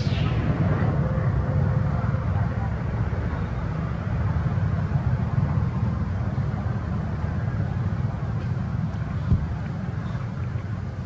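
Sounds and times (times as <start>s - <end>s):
faint hiss: 0.0s - 4.0s
low outdoor rumble: 0.0s - 11.0s.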